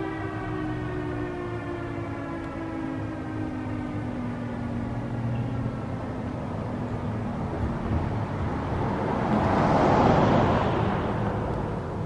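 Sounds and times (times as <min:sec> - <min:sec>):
vehicle passing: 0:05.8 - 0:12.0.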